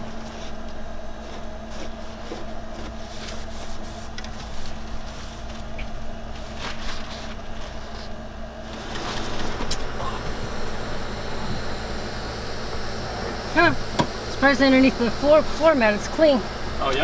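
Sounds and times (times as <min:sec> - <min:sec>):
steady low hum: 0:00.0 - 0:17.0
cloth wiping metal floor: 0:00.2 - 0:08.1.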